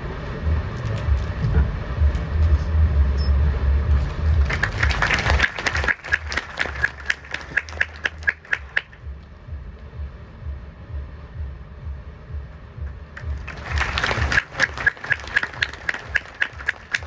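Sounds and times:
low rumble: 0.0s - 17.0s
audience clapping: 4.0s - 9.1s, 13.2s - 17.0s.

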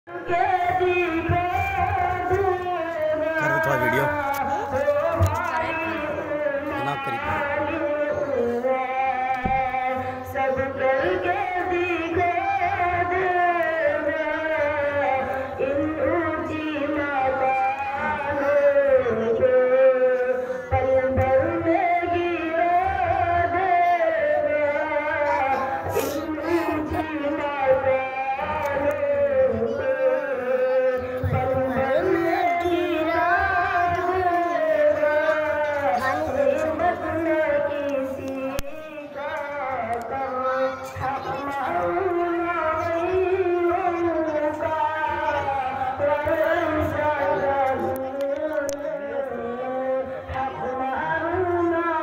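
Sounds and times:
boy chanting: 0.1s - 52.0s.

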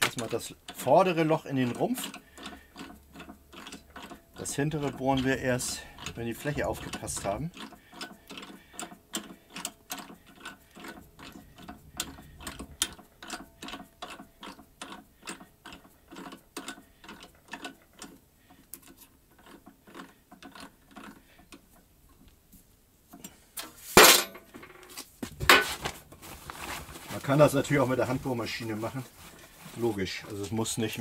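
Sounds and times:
drill press mechanical ticking: 0.0s - 22.4s.

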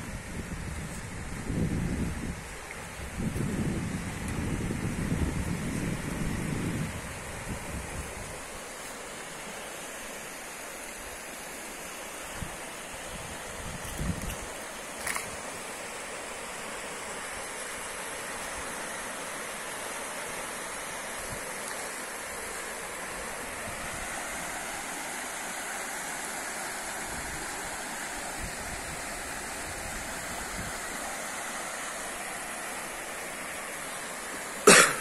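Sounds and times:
water rushing from sluice gates: 7.2s - 34.8s.

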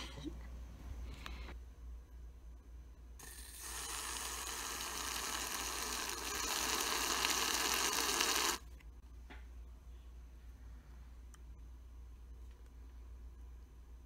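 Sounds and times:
aerosol can hissing: 3.2s - 8.6s.

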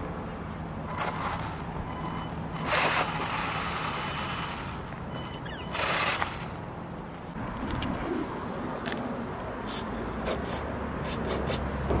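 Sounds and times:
high motor whine: 0.8s - 6.8s.

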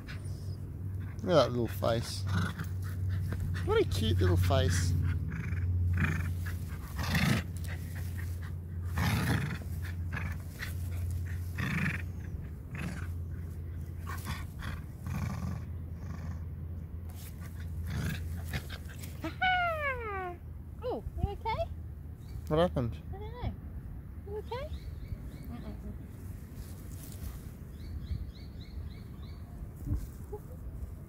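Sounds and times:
steady low rumble: 0.0s - 31.0s
small dog growling in play: 1.0s - 3.7s, 4.9s - 16.6s, 17.2s - 19.2s.

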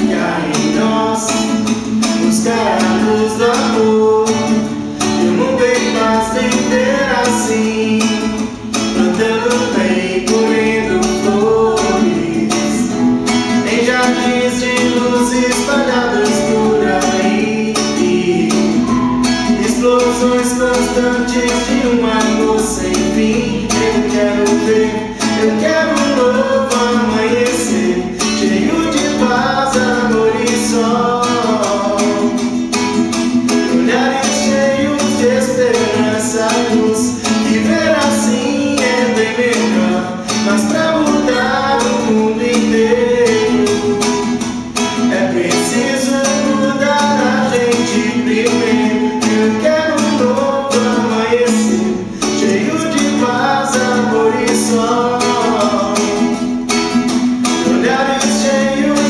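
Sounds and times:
classical guitar strummed: 0.0s - 59.0s.

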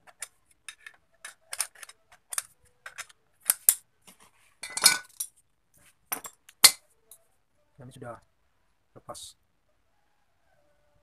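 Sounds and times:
metal clicks and clinks: 0.0s - 3.8s.

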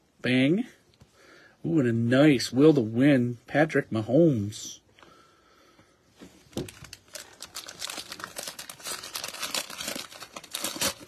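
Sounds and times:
plastic wrapper crinkling and tearing: 6.5s - 11.0s.

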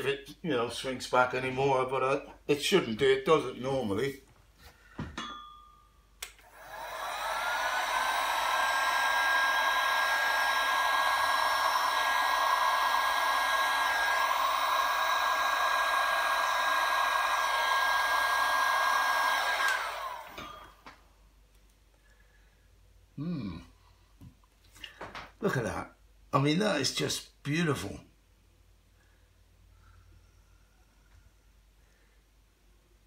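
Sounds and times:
heat gun motor whining: 6.4s - 20.8s.

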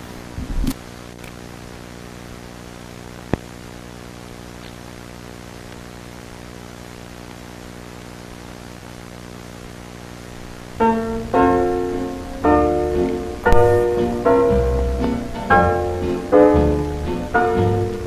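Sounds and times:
electrical hum: 0.0s - 18.0s
static hiss: 0.0s - 18.0s.

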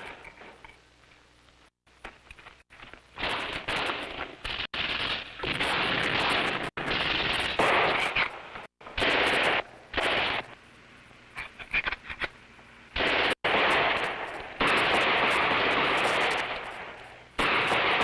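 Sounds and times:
machine gun automatic fire: 3.2s - 8.4s, 9.0s - 10.5s, 13.0s - 18.0s.

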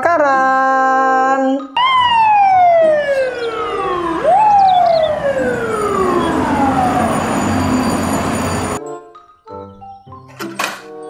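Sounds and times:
fire truck siren: 1.8s - 8.8s
street traffic: 1.8s - 8.8s.

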